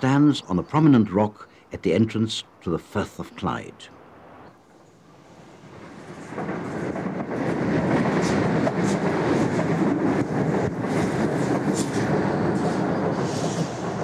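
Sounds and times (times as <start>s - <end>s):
train rumbling on rails: 4.2s - 14.0s.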